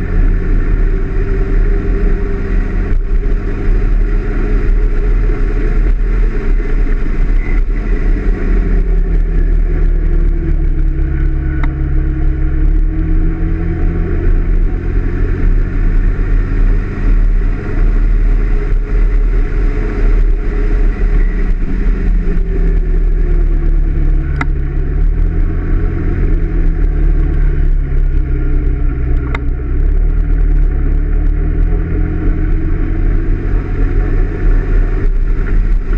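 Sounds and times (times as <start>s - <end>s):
wind rumble on microphone: 0.0s - 35.9s.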